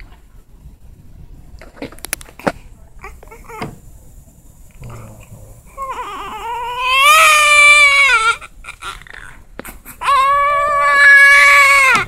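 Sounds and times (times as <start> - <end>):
newborn baby crying: 5.7 - 12.0.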